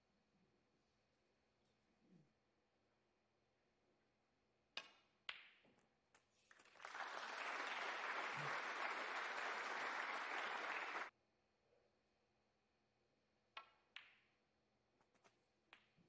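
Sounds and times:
audience applause: 6.5s - 11.1s.

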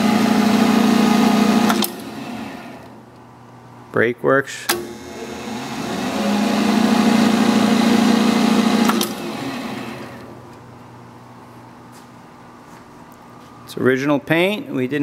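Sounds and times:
lathe humming: 0.0s - 3.0s, 4.8s - 10.4s
lever click: 1.6s - 2.1s, 4.7s - 5.0s, 8.8s - 9.2s.

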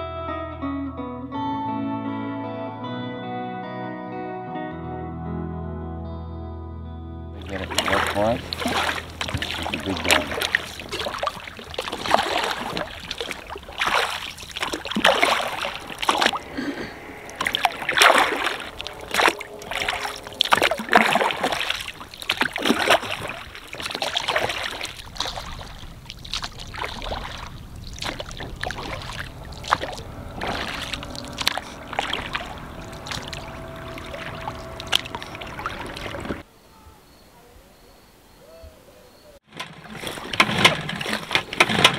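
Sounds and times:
oars splashing in water: 7.4s - 36.4s, 39.5s - 41.9s
water dripping: 7.4s - 36.4s.

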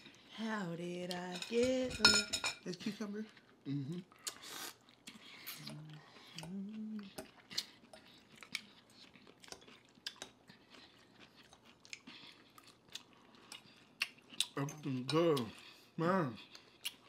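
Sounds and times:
chewing and lip smacks: 3.3s - 17.0s
person humming mm: 3.6s - 4.7s, 5.4s - 7.4s.

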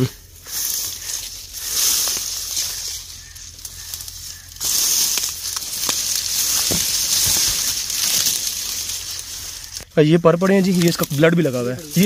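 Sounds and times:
dry brush crackling and rustling: 0.0s - 12.0s
soft footfalls: 5.6s - 9.6s.

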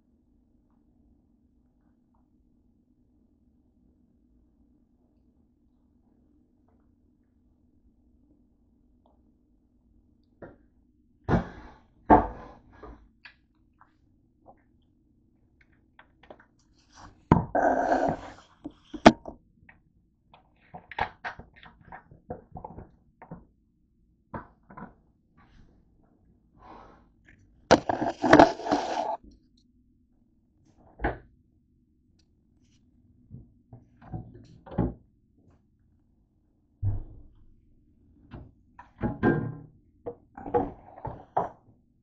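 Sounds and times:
rustling crackling noise: 27.7s - 29.2s.

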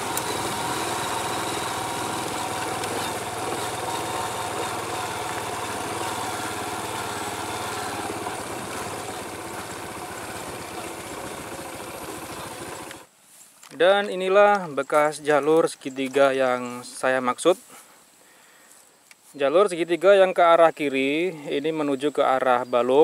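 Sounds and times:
small motorcycle engine running: 0.0s - 13.1s.

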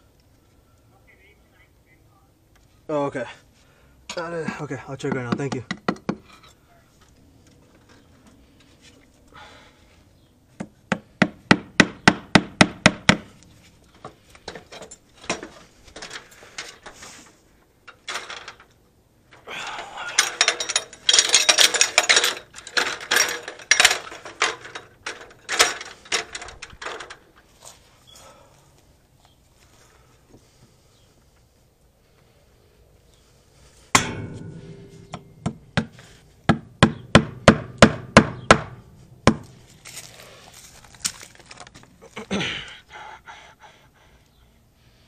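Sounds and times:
hammer striking nail: 10.6s - 13.3s, 36.5s - 39.5s
metallic clattering and knocking: 20.0s - 27.3s, 34.0s - 39.5s.

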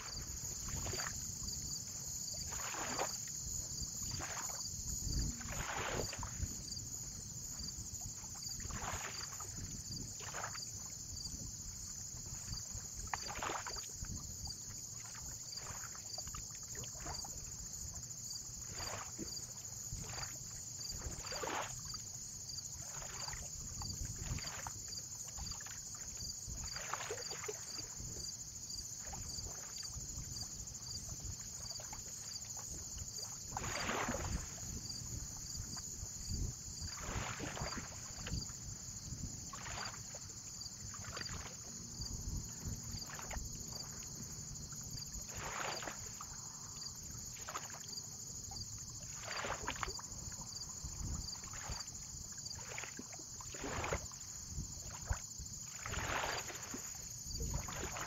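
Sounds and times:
small waves lapping: 0.0s - 58.0s
low wind rumble: 4.7s - 8.2s.

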